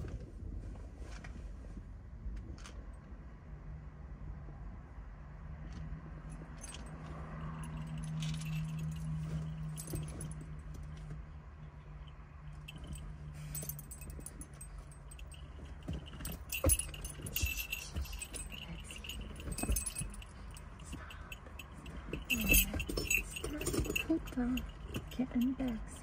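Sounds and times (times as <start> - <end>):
dog collar tags jingling: 6.4 - 10.7, 11.8 - 26.0.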